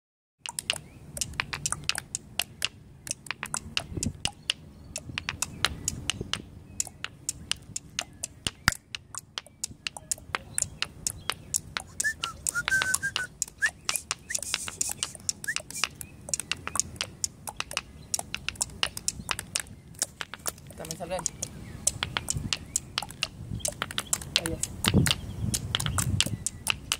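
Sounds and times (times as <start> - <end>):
stones clicking on pavement: 0.4 - 26.9
high whistle-like chirps: 11.8 - 16.5.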